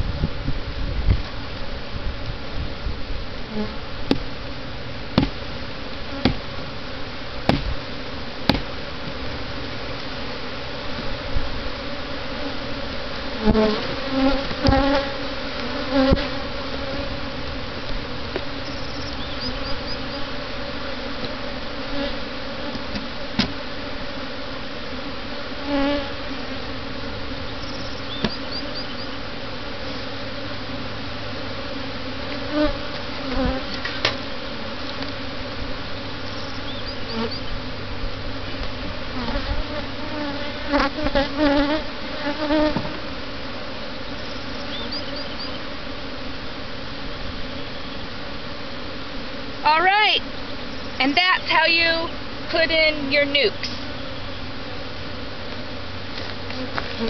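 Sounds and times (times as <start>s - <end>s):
honeybees buzzing: 0.0s - 57.0s
sharp knocks: 5.2s - 5.4s, 6.2s - 6.4s, 7.5s - 7.7s, 8.5s - 8.7s.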